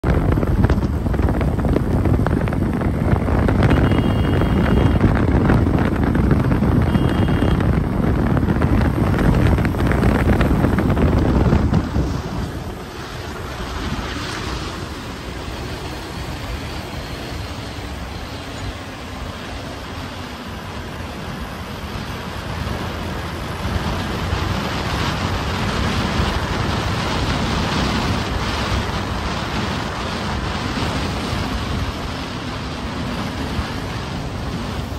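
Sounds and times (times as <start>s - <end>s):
motorcycle road noise: 0.0s - 34.9s
road and traffic noise: 0.0s - 34.9s
wind buffeting microphone: 0.0s - 34.9s
short high beeps: 3.7s - 5.0s, 6.9s - 7.6s.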